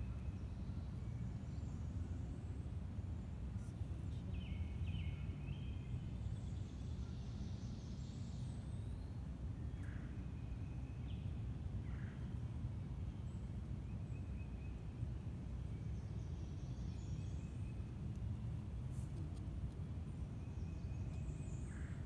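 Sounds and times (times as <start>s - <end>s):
steady low rumble: 11.0s - 22.0s.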